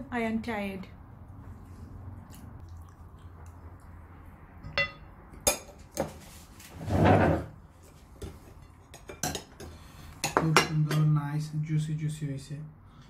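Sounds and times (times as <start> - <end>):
dishes and cutlery clinking: 4.7 - 6.2, 8.2 - 11.2.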